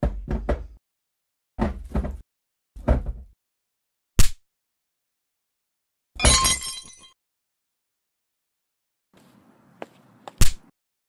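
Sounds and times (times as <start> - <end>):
glass shattering: 6.2 - 7.2.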